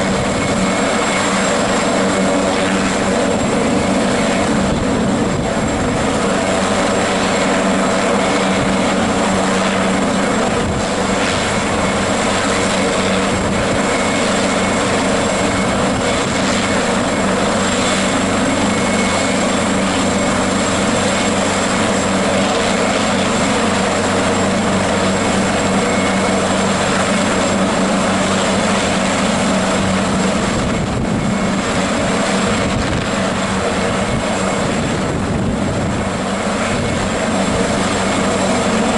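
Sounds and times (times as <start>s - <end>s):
helicopter rotor and engine noise: 0.0s - 38.9s
high turbine whine: 0.0s - 38.9s.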